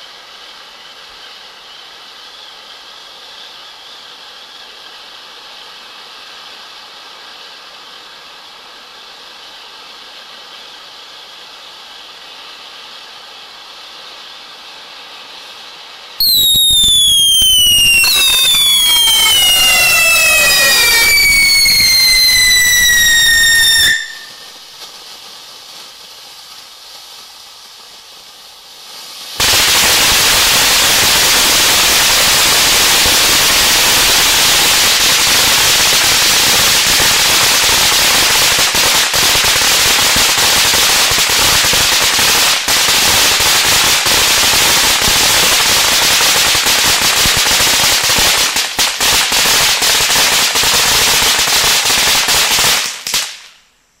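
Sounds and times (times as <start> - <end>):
firework spraying sparks: 0.0 - 53.8
firework fountain crackling: 0.0 - 54.0.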